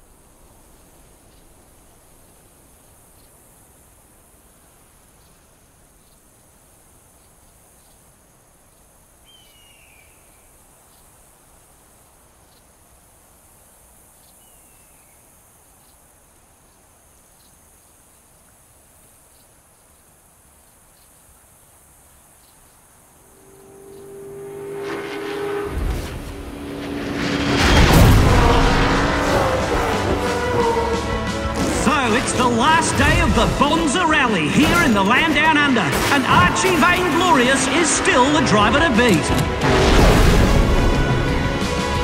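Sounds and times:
insects droning: 0.0s - 42.0s
falling bird cry: 9.2s - 10.6s
vehicle approaching rumble: 23.4s - 33.6s.

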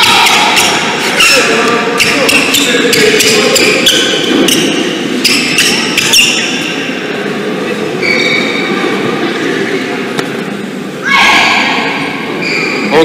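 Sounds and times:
shoes squeaking on court floor: 0.2s - 6.8s, 8.0s - 8.7s, 12.4s - 13.0s.

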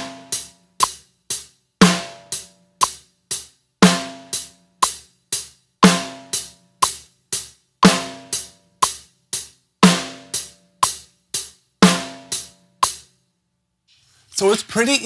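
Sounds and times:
hi-hat strokes: 0.0s - 3.7s, 4.3s - 13.1s.

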